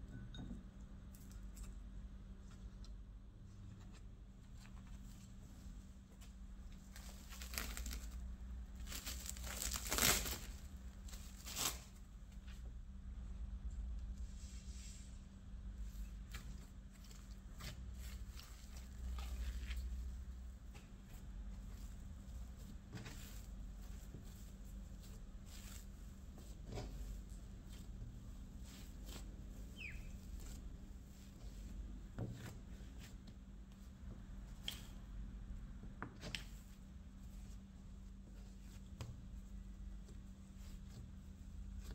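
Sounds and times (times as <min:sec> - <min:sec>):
faint steady hum: 0:00.0 - 0:41.9
hands shaping bread dough: 0:00.1 - 0:41.9
plastic cling film crinkling: 0:06.8 - 0:12.0, 0:21.7 - 0:30.6.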